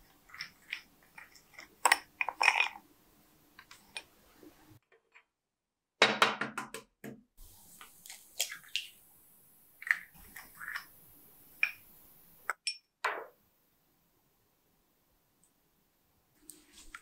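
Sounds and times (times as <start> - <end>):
spoon scraping ceramic cup: 0.3 - 2.8.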